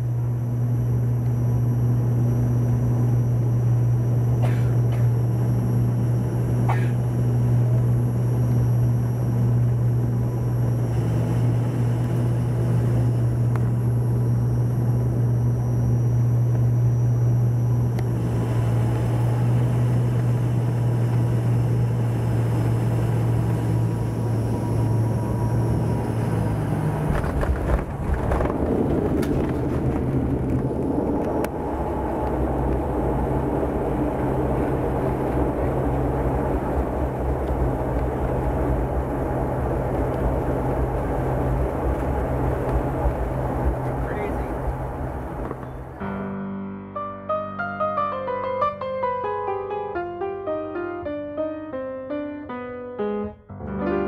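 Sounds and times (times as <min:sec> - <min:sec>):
wheels rumbling on runway: 0:00.0 - 0:46.1
airliner engines droning: 0:00.0 - 0:46.2
touchdown bump: 0:27.0 - 0:46.0.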